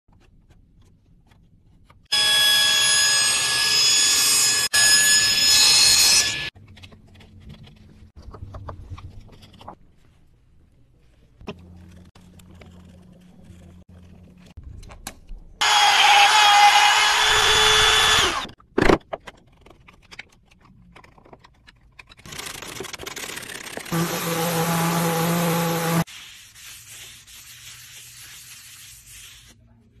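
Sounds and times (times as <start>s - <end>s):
table saw whining: 2.1s - 6.5s, 15.6s - 18.6s, 23.9s - 26.0s
orbital sander running: 23.9s - 26.0s.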